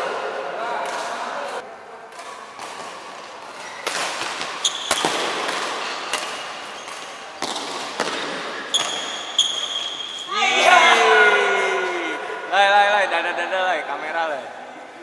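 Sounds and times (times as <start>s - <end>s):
rackets striking shuttlecock: 2.1s - 10.0s
shoe squeaks on wooden court: 4.6s - 5.2s, 5.8s - 7.2s, 8.7s - 10.3s.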